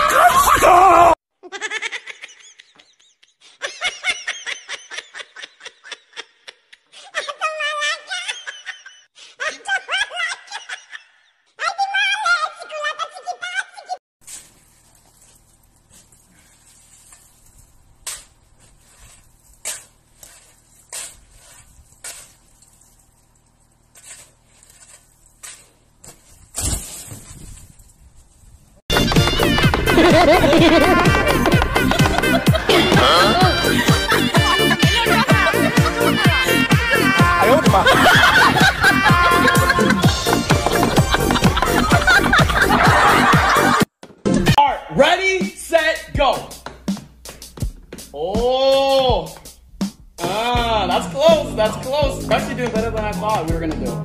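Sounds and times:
high-pitched laughter: 0:00.0 - 0:14.0, 0:29.9 - 0:43.9
tool chopping snow and ice: 0:15.9 - 0:22.9.

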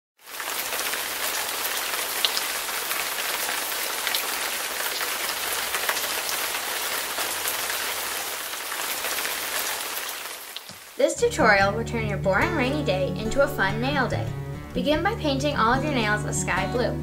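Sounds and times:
rain on hard surface: 0:00.2 - 0:11.4
sharp raindrop ticks: 0:08.7 - 0:11.0.

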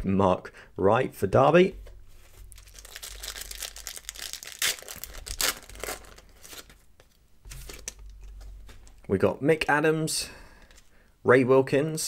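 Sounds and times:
wrapper being torn open: 0:02.5 - 0:06.9.

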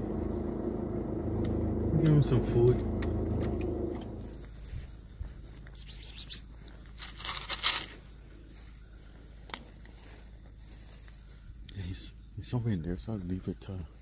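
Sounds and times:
car engine hum: 0:00.0 - 0:14.0
crickets trilling: 0:03.4 - 0:14.0
scuffing noises: 0:04.4 - 0:11.5.

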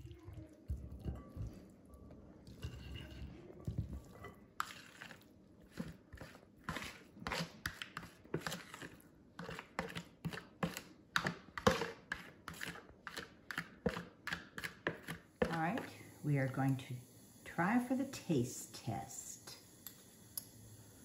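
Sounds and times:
spatula scraping a mixing bowl: 0:02.5 - 0:16.0.

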